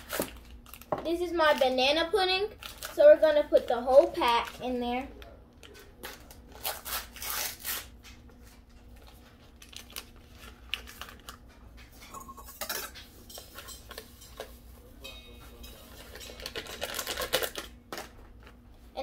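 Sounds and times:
paper pouch crinkling: 0:09.0 - 0:11.4, 0:16.4 - 0:17.7.

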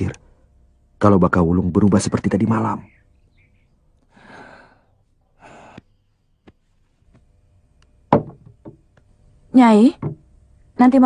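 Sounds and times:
person breathing: 0:04.1 - 0:06.1.

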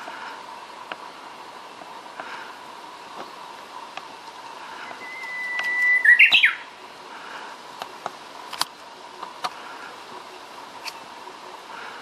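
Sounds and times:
bird singing whistled song: 0:04.8 - 0:06.7.

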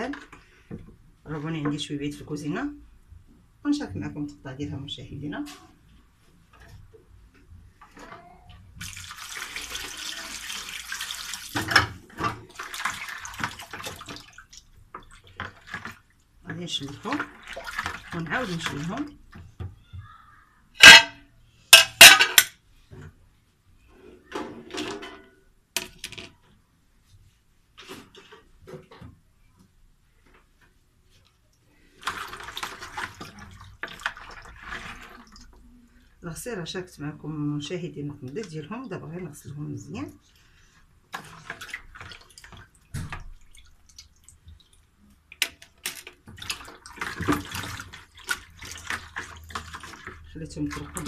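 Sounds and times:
water splashing and sloshing: 0:05.3 - 0:21.0, 0:30.6 - 0:36.2, 0:38.0 - 0:51.0
plastic items clattering on tiles: 0:20.8 - 0:22.6, 0:24.3 - 0:26.4, 0:45.4 - 0:51.0.

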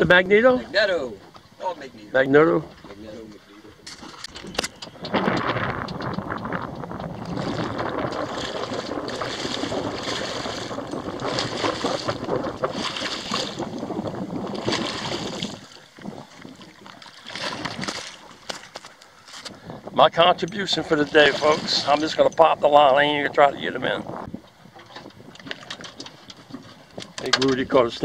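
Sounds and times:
wind buffeting microphone: 0:00.0 - 0:28.0
fish splashing at water surface: 0:07.3 - 0:18.8.

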